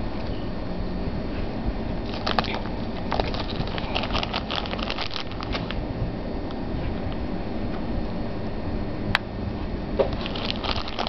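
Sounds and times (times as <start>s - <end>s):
plastic packet crinkling: 2.1s - 5.8s, 10.1s - 11.0s.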